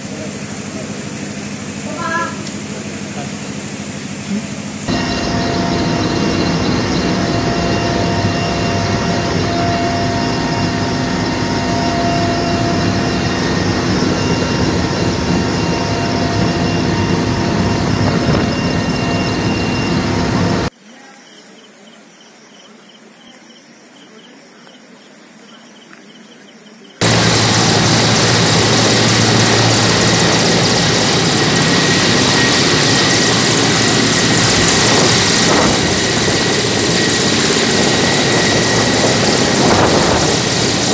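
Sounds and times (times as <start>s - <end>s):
helicopter hovering low: 0.0s - 20.7s, 27.0s - 40.9s
helicopter drone inside cabin: 4.8s - 20.7s, 27.0s - 40.9s.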